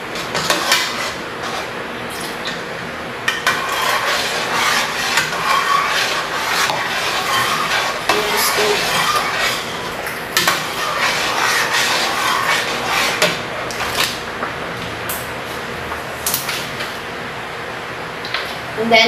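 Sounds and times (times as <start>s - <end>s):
spoon stirring thick mixture: 0.0s - 2.7s, 3.3s - 14.2s.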